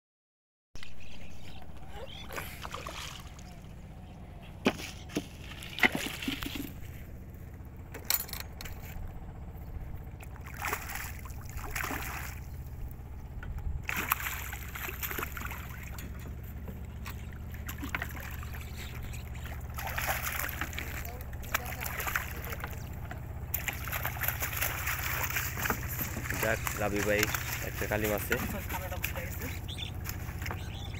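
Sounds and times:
fish splashing in water: 2.1 - 4.0, 4.8 - 6.9, 10.2 - 12.7, 13.8 - 30.9.

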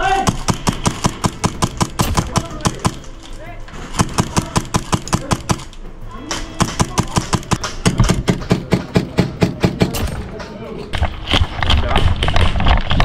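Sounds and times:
airsoft guns firing rapidly: 0.0 - 3.1, 3.9 - 5.7, 6.6 - 10.0.

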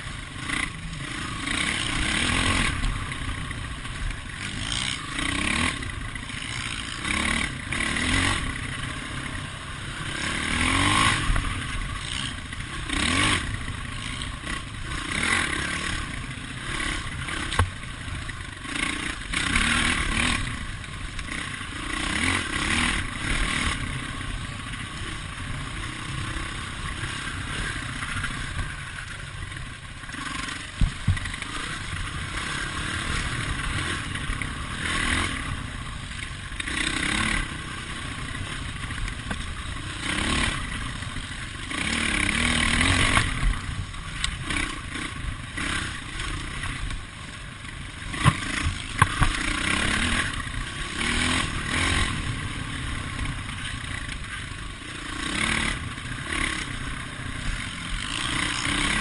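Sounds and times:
dirt bike engine revving: 0.0 - 59.0
bike knocks and rattles: 30.7 - 31.4, 48.1 - 49.4.

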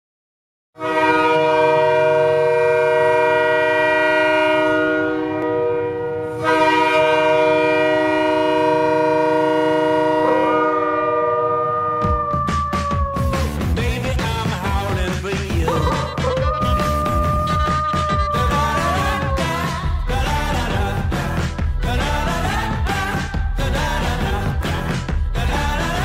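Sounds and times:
multi-tone air horn blasts: 0.8 - 12.1.

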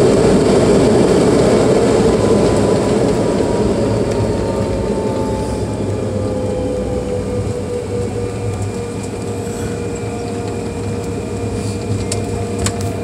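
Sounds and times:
jet engine whine: 0.0 - 13.0
low rumble of engines and gear: 0.0 - 13.0.

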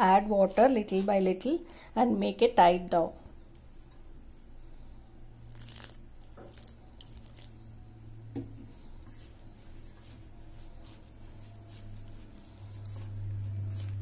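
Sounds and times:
dough crunching and squishing: 5.3 - 14.0.

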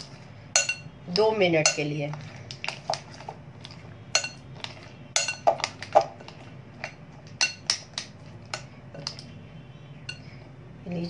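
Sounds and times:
spoon clinking in glass bowl: 0.6 - 0.9, 4.2 - 4.4, 5.2 - 5.7.

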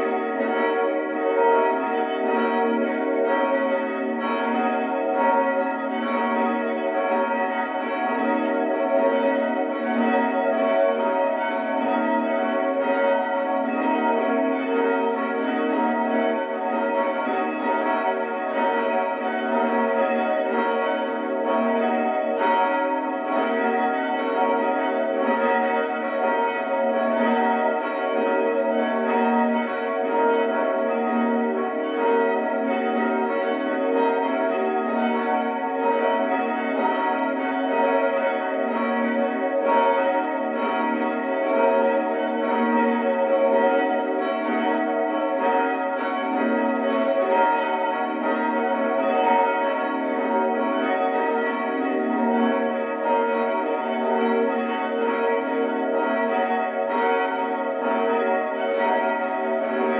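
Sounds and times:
church bells ringing: 0.0 - 59.9.

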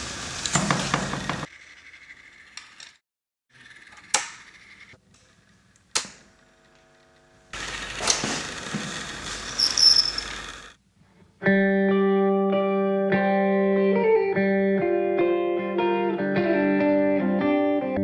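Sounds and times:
amplifier buzzing hum: 6.0 - 8.9.

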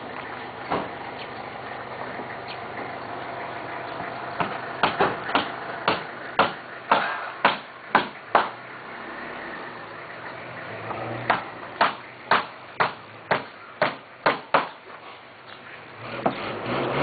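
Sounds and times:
hammer blows ringing: 4.4 - 8.6.

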